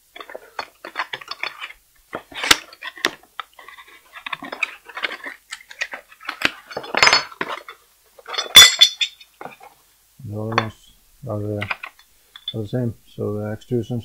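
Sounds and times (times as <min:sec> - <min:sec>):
cardboard rustling: 0:00.0 - 0:08.6
metal parts clattering: 0:00.0 - 0:09.7, 0:11.5 - 0:12.6.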